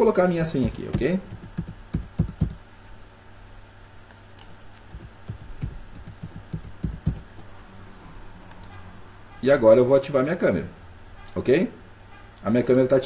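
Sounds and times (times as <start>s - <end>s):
faint steady hum: 0.0s - 13.0s
keyboard typing: 0.6s - 2.6s, 4.4s - 7.4s.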